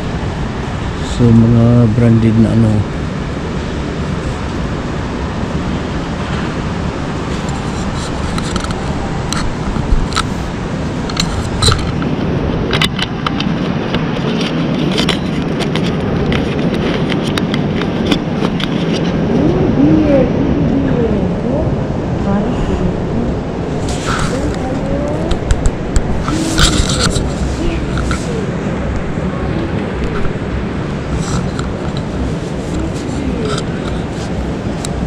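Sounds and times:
low background noise: 0.0 - 35.0
clicks and scrapes: 7.3 - 10.4, 11.0 - 12.1, 12.7 - 19.2, 23.8 - 24.6, 25.2 - 28.3, 31.1 - 35.0.

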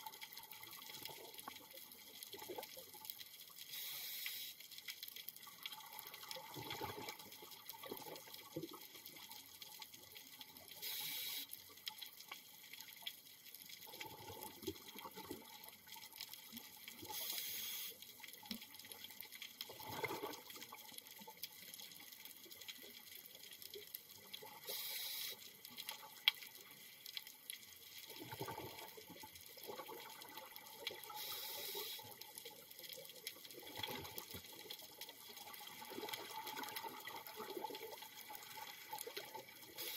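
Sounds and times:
regulator inhalation hiss: 3.7 - 4.6, 10.8 - 11.5, 17.1 - 18.0, 24.6 - 25.4, 31.2 - 32.1
gurgle of exhaled bubbles: 5.9 - 8.2, 19.7 - 20.6, 28.1 - 29.0.

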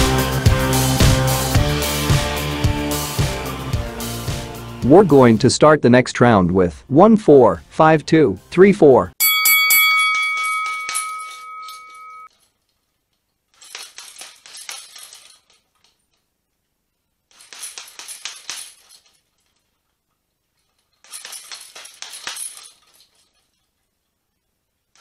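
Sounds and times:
boxing bell ringing: 9.2 - 12.3.

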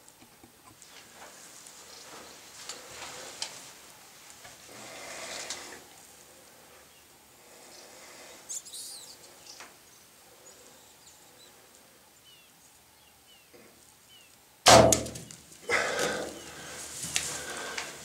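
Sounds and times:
faint bird chirps: 6.8 - 14.4.

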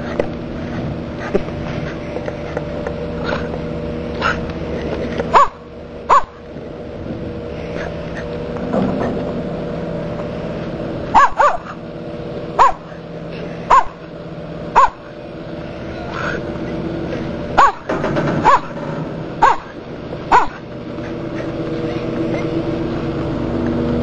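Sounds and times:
ferry engine humming: 0.0 - 24.0
small dog barking: 5.3 - 6.4, 11.1 - 11.8, 12.6 - 13.0, 13.7 - 14.0, 14.8 - 15.1, 17.6 - 18.7, 19.4 - 20.6.

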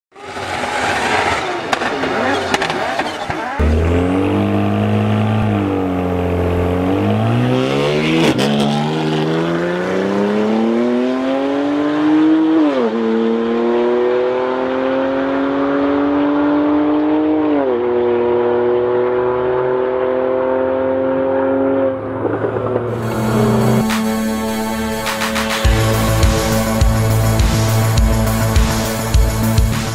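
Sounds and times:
car engine accelerating hard: 0.2 - 29.9.

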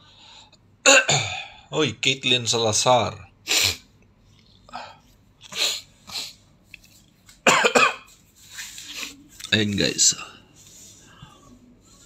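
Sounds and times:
person coughing: 0.8 - 1.6, 7.4 - 8.1.

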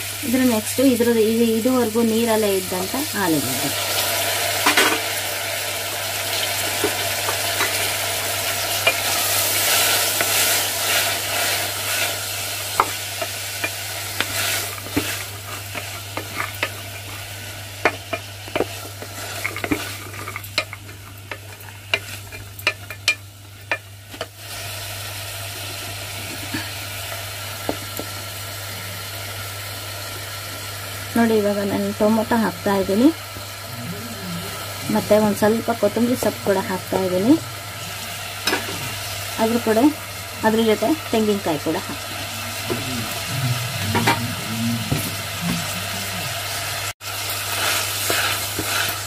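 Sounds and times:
vegetables sizzling in oil: 0.0 - 49.0
spoon scraping pan: 8.6 - 24.3, 43.9 - 45.9, 47.4 - 49.0.

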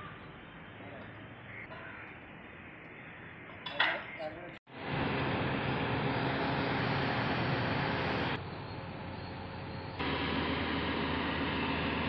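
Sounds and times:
diesel engine running: 4.7 - 12.0.

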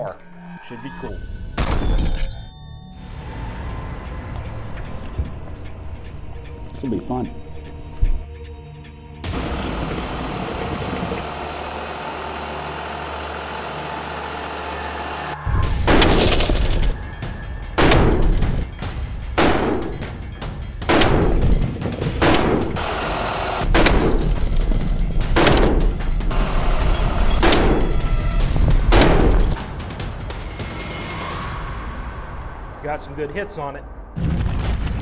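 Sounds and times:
steady low hum: 9.2 - 15.4
rifle shots: 22.2 - 22.9.

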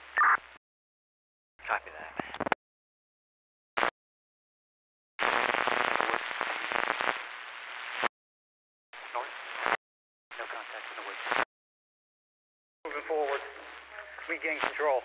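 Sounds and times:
radio static and crackle: 0.0 - 0.6, 1.7 - 2.6, 3.8 - 4.0, 5.2 - 8.1, 9.0 - 11.5, 12.9 - 15.0
radio click: 2.2 - 2.6.

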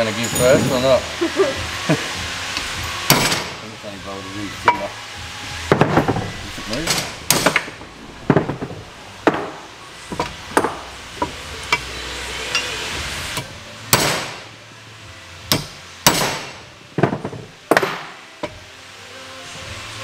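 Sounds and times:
hammer striking metal punch: 3.0 - 3.6, 5.7 - 11.9, 13.4 - 14.5, 15.5 - 18.6.

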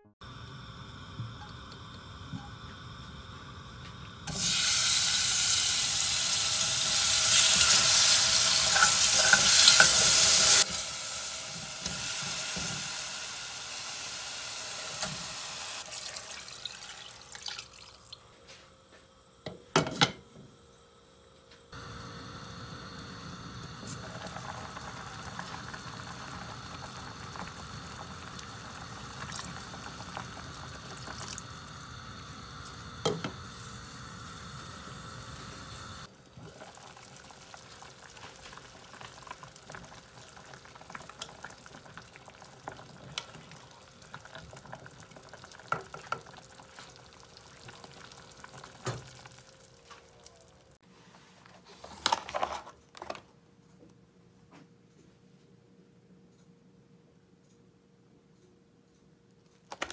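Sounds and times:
soup bubbling in a pot: 21.8 - 50.8.

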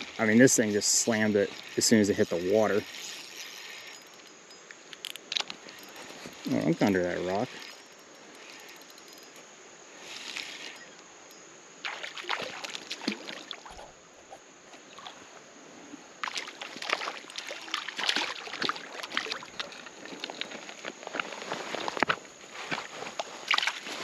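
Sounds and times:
water splashing and sloshing: 11.8 - 24.0.

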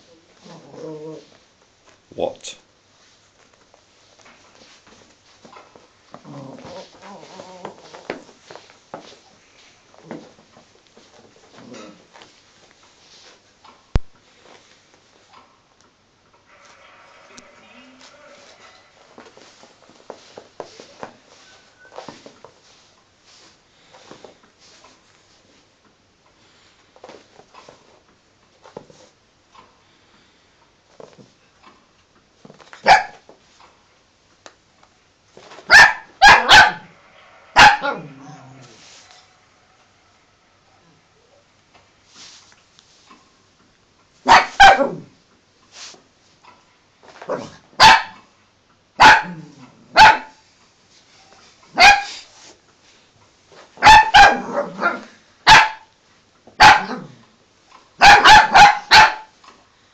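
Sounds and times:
puppy barking: 32.8 - 33.2, 35.7 - 36.9, 37.6 - 38.2, 44.2 - 45.1, 47.3 - 48.2, 49.0 - 50.4, 51.7 - 52.2, 53.8 - 55.9, 56.6 - 57.1, 58.0 - 59.3.

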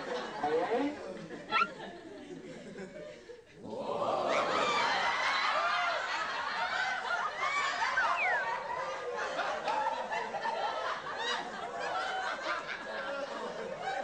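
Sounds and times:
audience laughter from laugh track: 4.1 - 14.0.

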